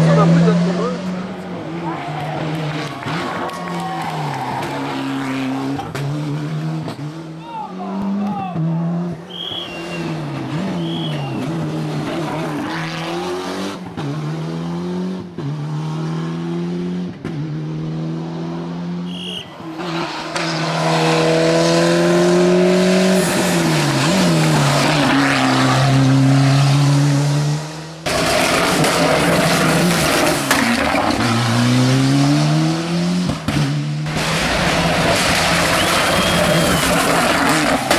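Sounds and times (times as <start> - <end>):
rally car engine revving: 0.0 - 37.9
tyre squeals: 9.3 - 11.6, 35.7 - 37.9.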